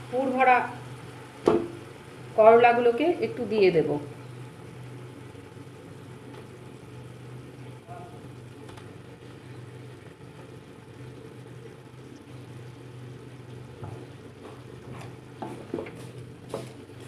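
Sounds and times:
gravy sizzling in a frying pan: 0.0s - 17.0s
steady low hum: 0.0s - 17.0s
wooden spatula knocking on pan: 1.4s - 1.8s.

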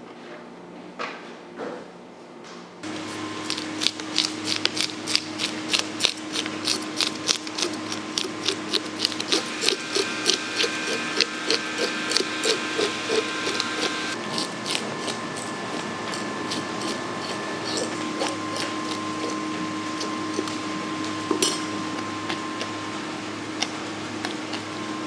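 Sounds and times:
fish scaler scraping scales: 2.9s - 22.8s.

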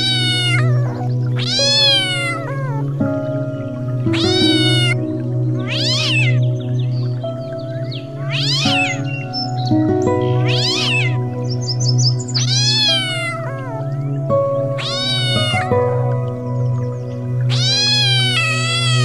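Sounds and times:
cat meowing: 0.0s - 2.9s, 4.1s - 5.0s, 5.6s - 6.5s, 8.2s - 9.1s, 10.2s - 11.3s, 12.4s - 16.2s, 17.5s - 19.0s
background music: 0.0s - 19.0s.

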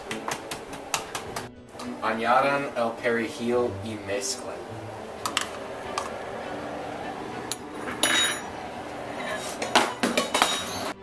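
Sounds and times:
utensils knocking against a pan: 5.2s - 6.2s, 9.6s - 10.9s.

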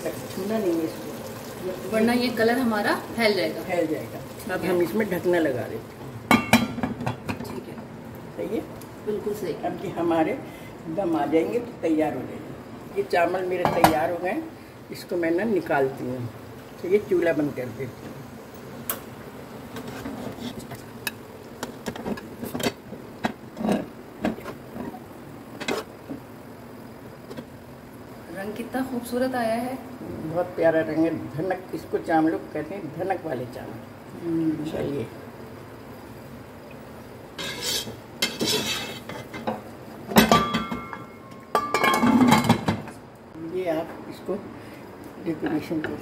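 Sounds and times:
spoon scraping metal pot: 37.4s - 39.4s
metal lid clattering onto pot: 40.2s - 42.9s.

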